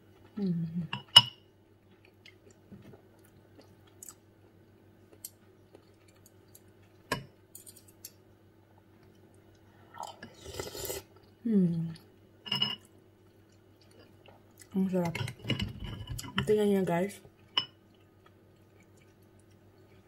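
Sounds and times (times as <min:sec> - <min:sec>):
quiet chewing: 0:01.8 - 0:07.1, 0:07.9 - 0:12.2, 0:13.2 - 0:14.8, 0:17.3 - 0:20.0
slurping broth: 0:09.9 - 0:11.1.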